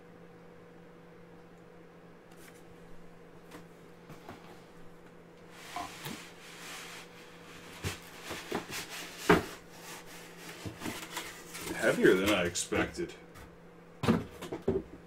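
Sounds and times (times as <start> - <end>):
faint steady hum: 0.0 - 15.0
cardboard rustling and scraping: 5.5 - 12.2.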